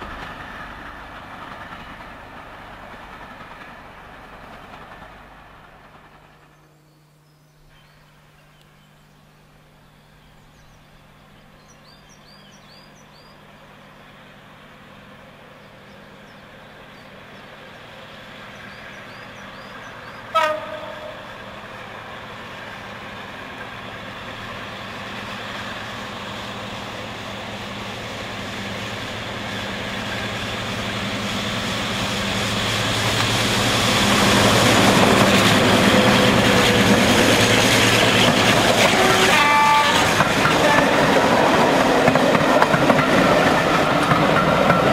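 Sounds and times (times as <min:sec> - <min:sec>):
diesel locomotive passing: 0:00.0 - 0:44.9
train horn blast: 0:20.3 - 0:21.4, 0:38.7 - 0:41.3.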